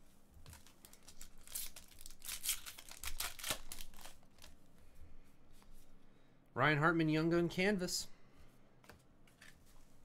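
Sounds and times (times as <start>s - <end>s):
foil wrapper crinkling and tearing: 0.5s - 4.6s.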